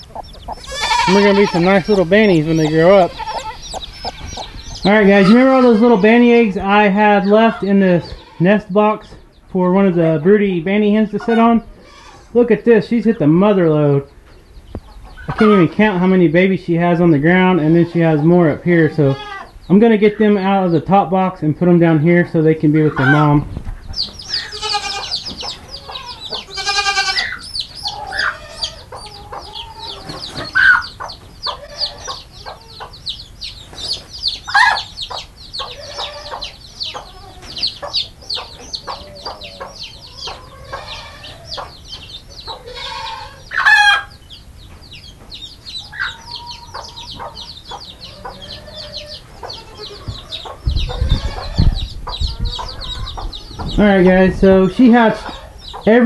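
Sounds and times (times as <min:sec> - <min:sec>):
chicks peeping: 0:00.0 - 0:56.0
hen clucking: 0:00.0 - 0:56.0
low thumps: 0:50.0 - 0:54.6.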